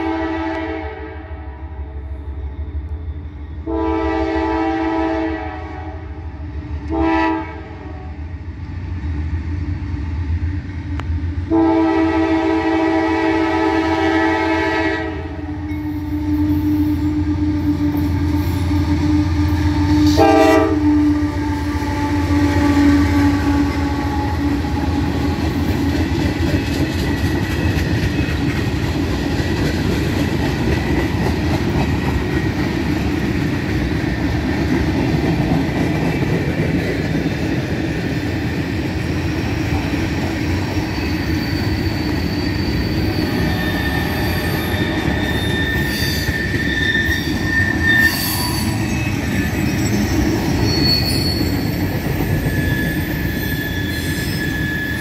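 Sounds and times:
train air horn blasts: 0.0s - 1.6s, 3.6s - 6.2s, 6.9s - 8.2s, 11.5s - 25.8s.

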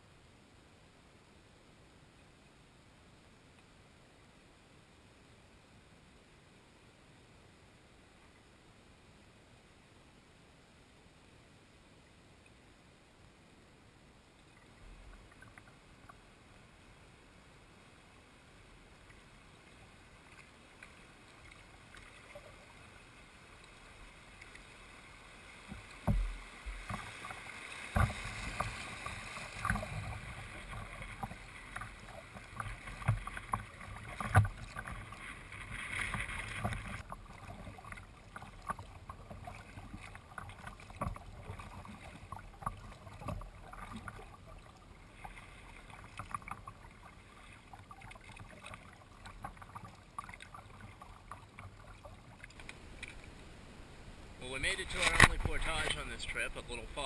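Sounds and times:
water splashing around kayak: 14.2s - 57.0s
knocks against hull: 26.0s - 27.0s.

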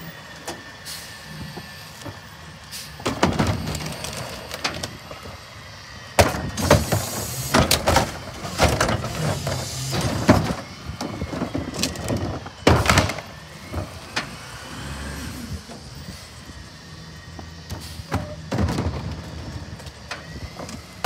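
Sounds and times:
garbage truck engine hum: 0.0s - 21.0s
plastic carts banging against hopper: 3.0s - 4.9s, 6.2s - 14.4s, 17.7s - 21.0s
trash dropping in: 3.0s - 5.0s, 6.2s - 14.4s, 17.7s - 20.8s.

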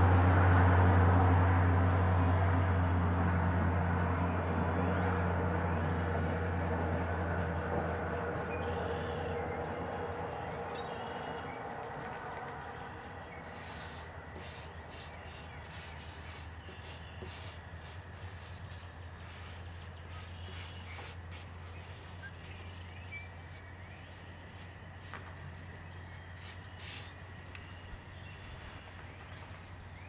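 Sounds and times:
steady low hum: 0.0s - 30.0s
charcoal scratching on paper: 3.2s - 9.4s, 13.4s - 25.3s.

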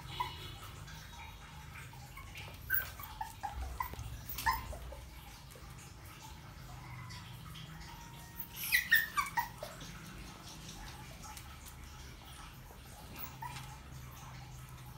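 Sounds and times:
puppy yelping: 0.0s - 5.7s, 8.4s - 11.5s, 12.3s - 14.5s.

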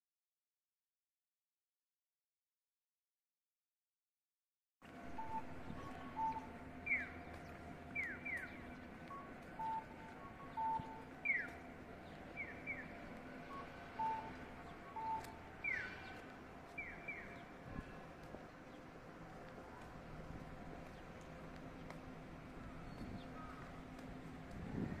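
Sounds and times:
electronic bird-like chirps: 5.1s - 7.3s, 8.0s - 11.6s.

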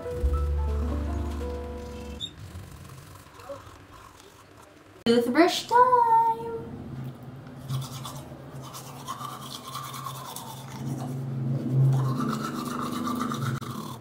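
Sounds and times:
toothbrush scrubbing teeth: 2.2s - 4.8s, 7.6s - 14.0s.

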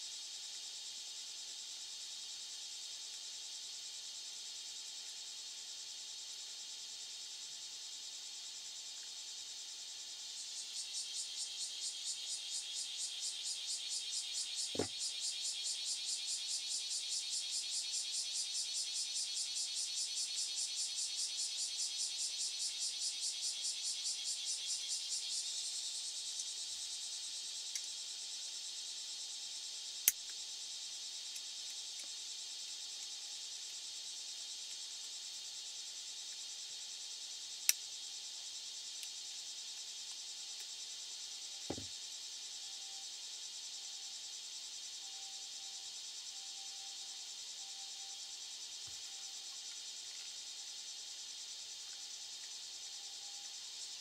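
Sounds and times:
insects trilling: 0.0s - 54.0s
soft thump: 41.7s - 41.9s.

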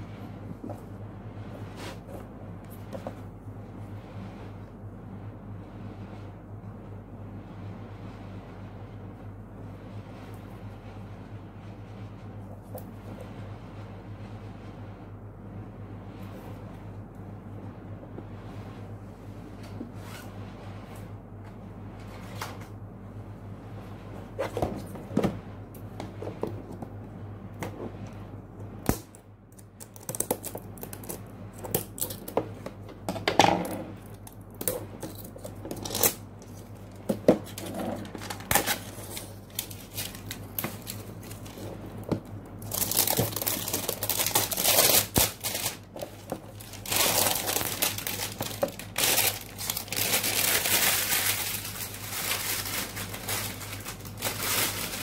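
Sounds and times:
plastic bag crinkling: 38.1s - 42.0s, 42.6s - 55.0s.

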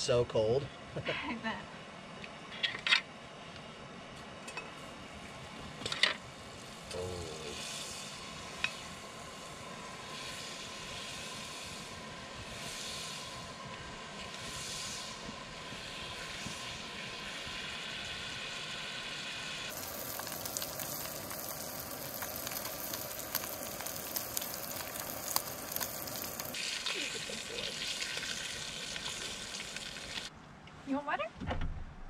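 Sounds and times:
gas burner hiss: 2.2s - 30.3s
fish sizzling in a pan: 6.4s - 30.3s.

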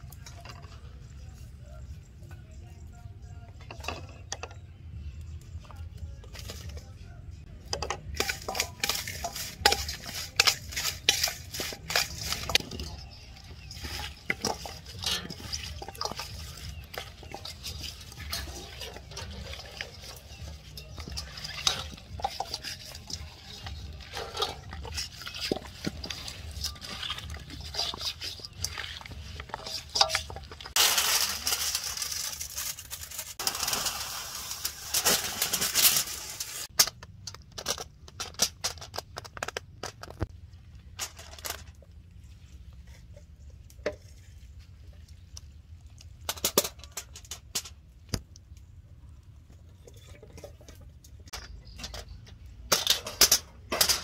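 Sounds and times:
spoon scraping steel bowl: 7.8s - 30.9s
rustling: 8.2s - 36.8s
hands squishing wet marinade: 8.4s - 30.8s.

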